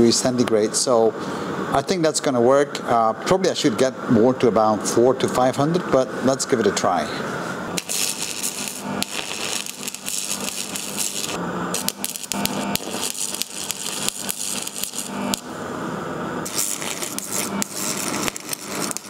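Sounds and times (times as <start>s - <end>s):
arc welding crackling and hissing: 3.5s - 19.0s.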